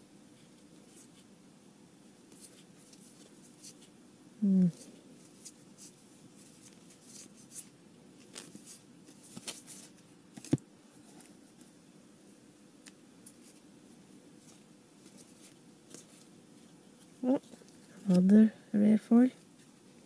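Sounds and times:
trading cards rustling: 4.8 - 11.7, 14.4 - 16.3, 17.2 - 18.4.

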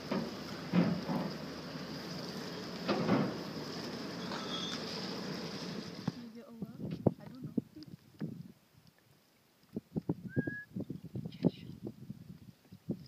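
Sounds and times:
rushing water: 0.0 - 6.4
wind noise: 6.0 - 8.9, 9.6 - 13.0.

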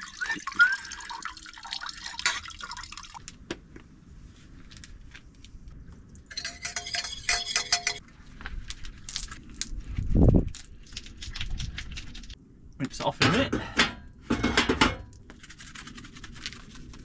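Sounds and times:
water running into metal saucepan: 0.0 - 3.1
clinks and drips: 0.0 - 3.4, 6.0 - 8.0.

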